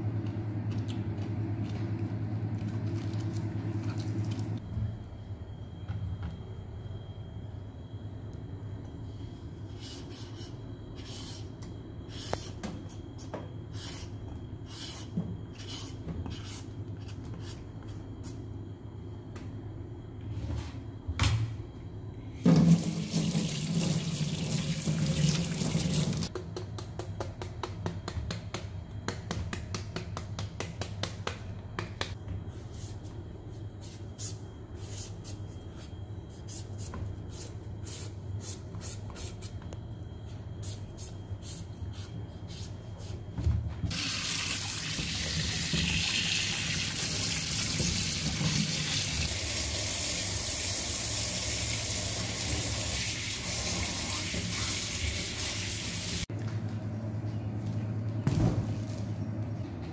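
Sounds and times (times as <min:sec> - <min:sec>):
tap running water: 0:22.5 - 0:26.3, 0:43.9 - 0:56.2.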